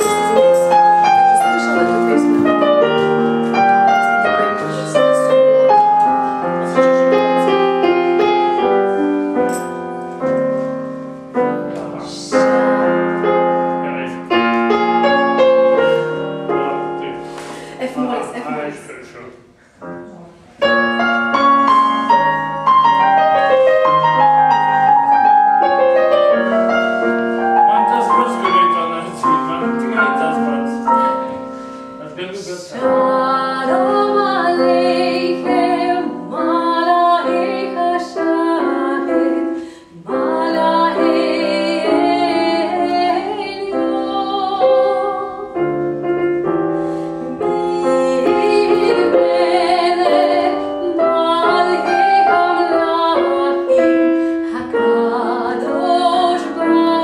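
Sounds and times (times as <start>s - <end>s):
piano playing: 0.0s - 57.0s
woman singing classically: 3.9s - 6.0s, 32.7s - 45.7s, 47.2s - 57.0s.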